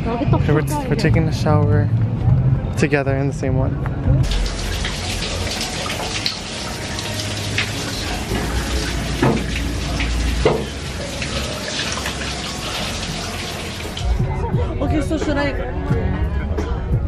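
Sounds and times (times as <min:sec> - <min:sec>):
shower water running: 0:04.2 - 0:14.1.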